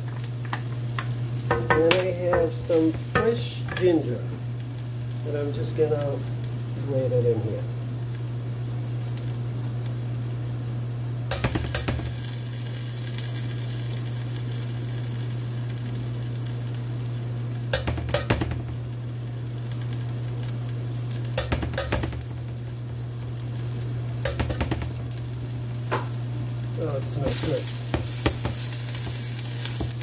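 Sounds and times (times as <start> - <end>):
vegetables sizzling in a pan: 0.0 - 30.0
utensils knocking on a pan: 1.0 - 4.0, 11.3 - 12.1, 17.7 - 18.8, 21.4 - 22.3, 24.2 - 25.0, 27.9 - 30.0.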